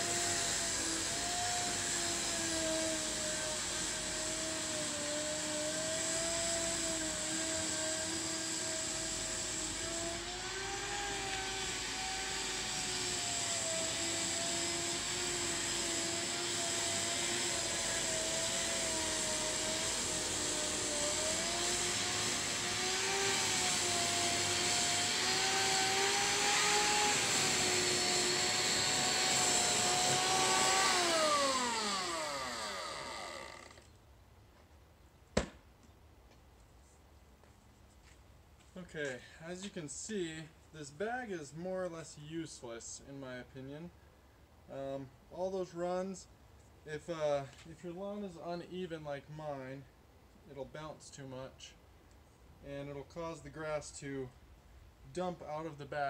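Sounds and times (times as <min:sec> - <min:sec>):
electric lawn dethatcher running: 0:00.0 - 0:33.8
motor spinning down: 0:00.0 - 0:33.9.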